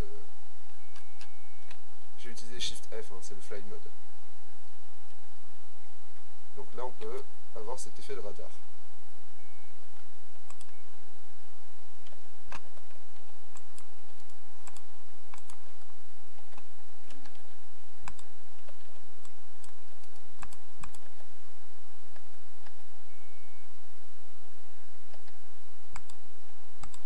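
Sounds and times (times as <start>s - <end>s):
steady low hum: 0.0s - 27.0s
keyboard and mouse clicks: 10.0s - 10.8s, 12.0s - 21.2s, 25.1s - 26.2s.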